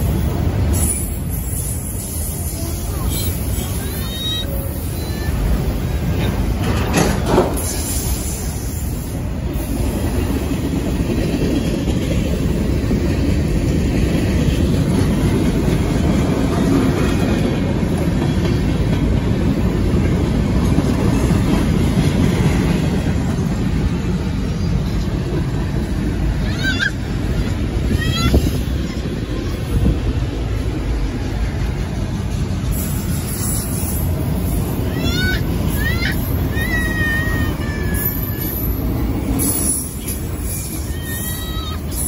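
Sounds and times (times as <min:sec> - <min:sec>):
freight train rumbling past: 0:00.0 - 0:42.0
wheels clacking over rail joints: 0:05.5 - 0:08.8.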